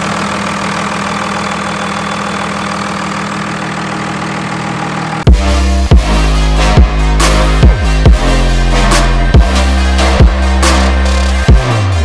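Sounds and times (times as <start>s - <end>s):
diesel engine idling: 0.0s - 12.0s
electronic music with heavy bass: 4.6s - 12.0s.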